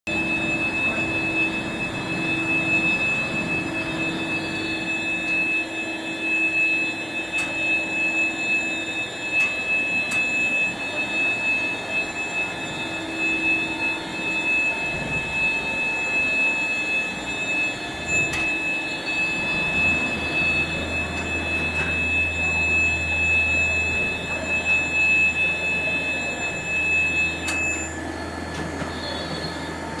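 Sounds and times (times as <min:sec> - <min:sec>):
high steady tone: 0:00.1 - 0:30.0
overhead crane running: 0:00.1 - 0:30.0
low hum: 0:12.9 - 0:29.0.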